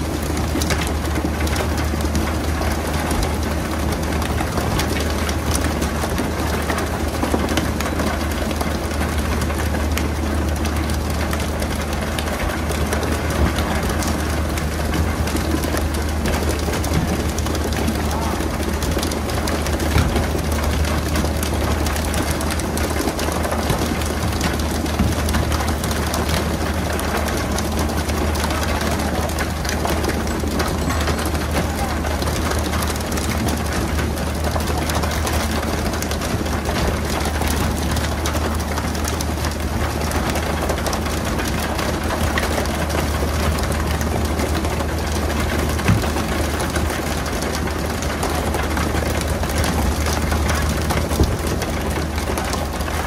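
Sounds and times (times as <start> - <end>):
boat engine humming: 0.0 - 53.0.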